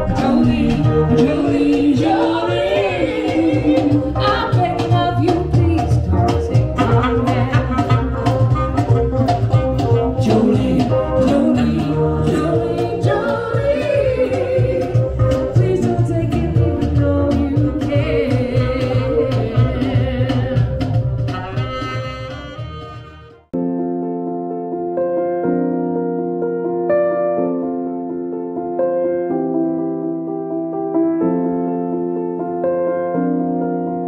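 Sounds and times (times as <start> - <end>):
person singing: 0.0 - 8.5, 10.2 - 20.9
cajon beat: 0.0 - 23.5
guitar: 0.0 - 24.7
keyboard: 0.0 - 34.0.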